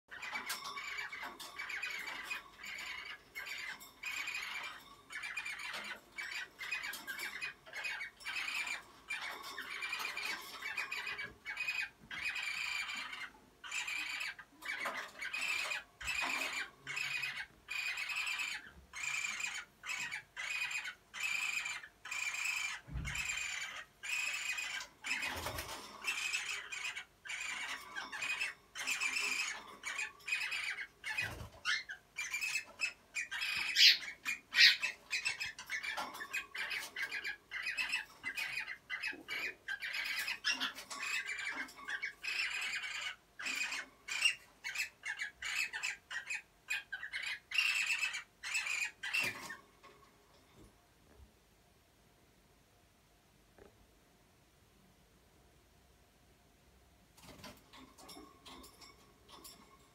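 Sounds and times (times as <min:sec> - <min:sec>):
cockatiels squawking: 0:00.1 - 0:49.6.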